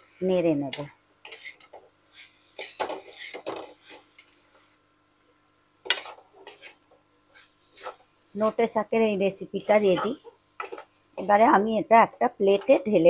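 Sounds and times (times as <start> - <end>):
metal spatula scraping a pan: 1.2 - 4.4, 5.9 - 8.1, 9.6 - 11.4.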